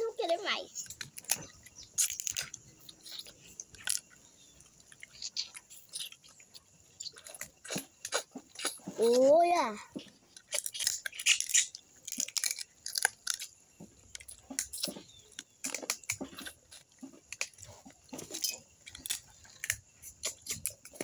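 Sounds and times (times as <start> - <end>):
crab shell cracking: 0.8 - 4.2, 10.3 - 21.0
chewing: 0.8 - 21.0.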